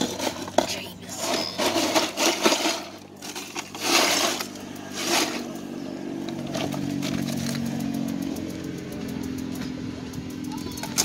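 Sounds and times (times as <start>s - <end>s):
scraping or rustling: 0.0s - 5.5s
engine hum: 0.0s - 11.0s.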